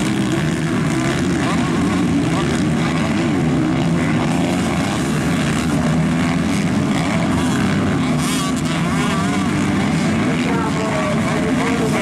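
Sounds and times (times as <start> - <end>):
motocross bikes revving: 0.0 - 12.0.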